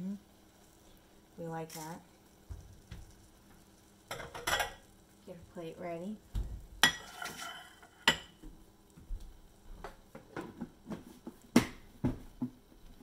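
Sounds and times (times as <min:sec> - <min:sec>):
plate clinking on stone: 0:04.1 - 0:04.8.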